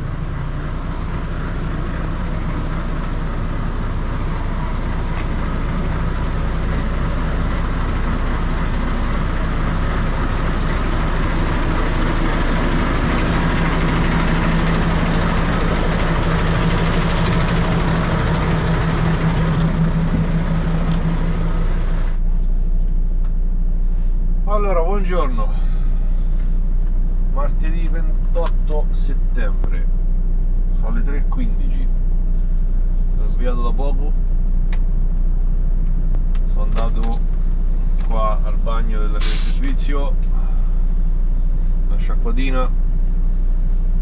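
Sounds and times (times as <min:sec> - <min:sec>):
low hum: 0:00.0 - 0:24.5, 0:34.0 - 0:39.1
lorry engines droning: 0:00.0 - 0:44.0
brief hiss: 0:39.2 - 0:39.6.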